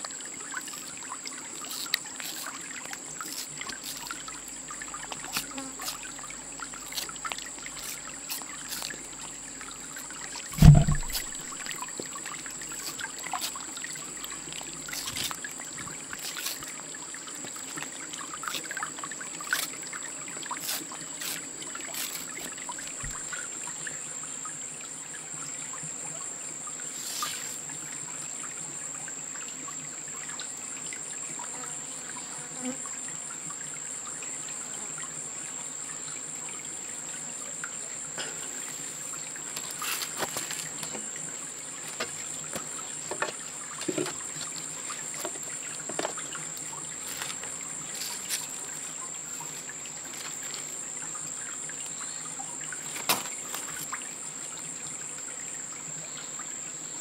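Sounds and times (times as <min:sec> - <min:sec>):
high insect drone: 0:00.0 - 0:57.0
stream trickling over stones: 0:00.0 - 0:57.0
loud low thump: 0:10.5 - 0:11.4.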